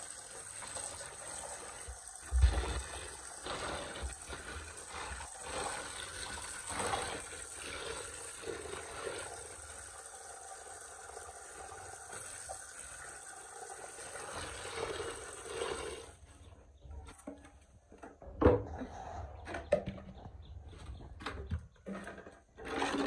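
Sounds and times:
water splashing and running: 0.0 - 16.2.

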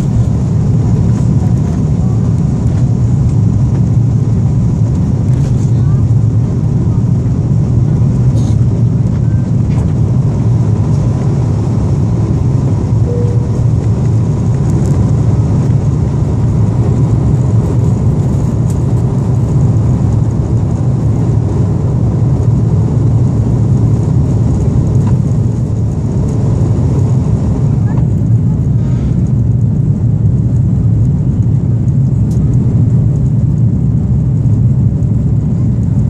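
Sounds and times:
rushing air: 0.0 - 20.1, 22.9 - 29.6
jet engines rumbling: 0.0 - 36.0.

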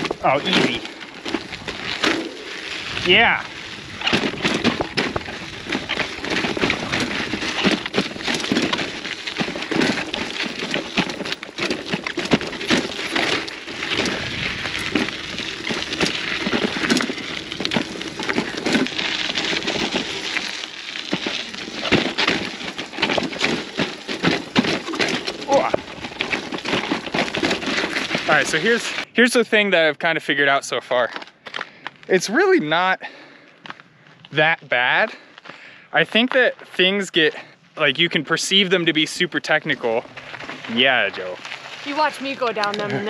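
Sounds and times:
bike clicks and knocks on bumps: 0.0 - 29.1
bike tyres crunching over dirt: 0.0 - 43.0.

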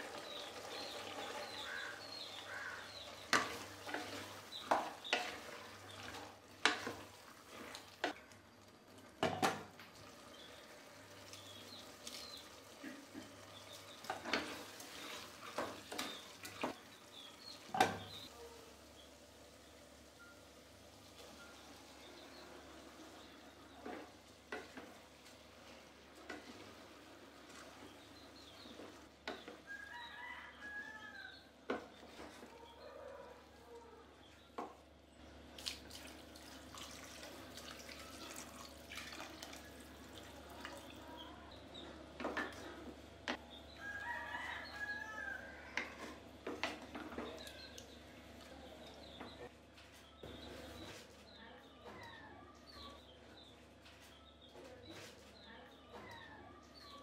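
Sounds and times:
rooster crowing: 29.7 - 31.4, 43.8 - 45.9
water pouring: 35.6 - 41.0.

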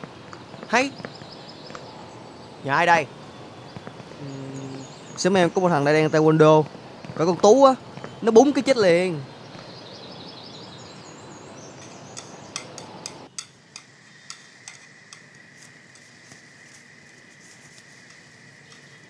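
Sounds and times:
faint bird chirps: 0.4 - 6.4, 7.6 - 13.0.

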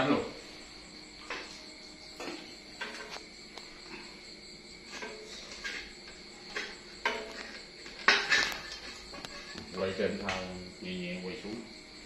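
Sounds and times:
metal pan clattering on scale: 2.2 - 3.2, 4.9 - 9.6.

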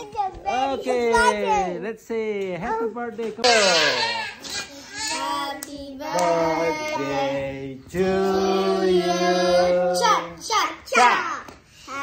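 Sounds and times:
children and man singing: 0.3 - 4.3, 5.0 - 11.2
hand claps: 5.1 - 7.0.

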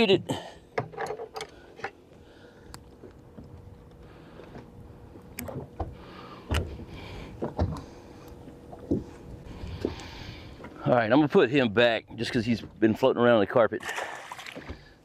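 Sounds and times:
wind and water against hull: 0.0 - 15.0
knocks and thumps on boat deck: 5.5 - 7.9.

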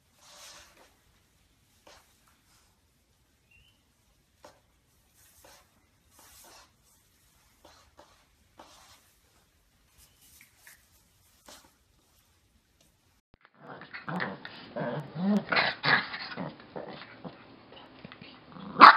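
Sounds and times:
faint rustles on a blanket: 4.4 - 12.6.

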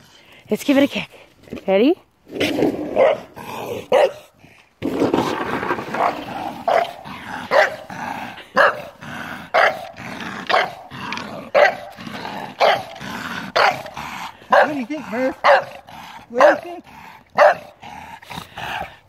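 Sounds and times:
dog barking: 3.0 - 3.3, 3.9 - 4.3, 6.7 - 7.9, 8.6 - 10.8, 11.5 - 11.9, 12.6 - 13.0, 13.6 - 13.9, 14.5 - 14.8, 15.4 - 16.7, 17.4 - 17.8.

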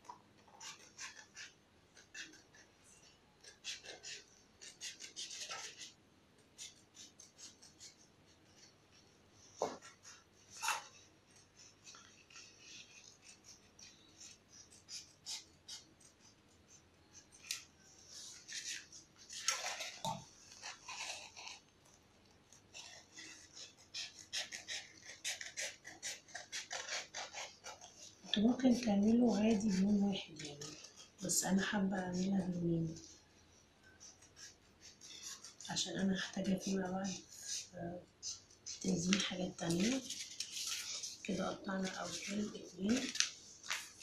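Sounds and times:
scissors snipping foam: 0.4 - 2.7.

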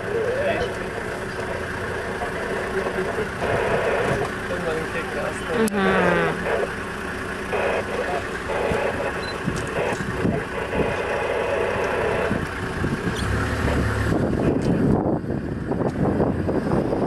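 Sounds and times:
vehicle engine idling: 0.0 - 17.0
wind gusting on microphone: 12.0 - 17.0.

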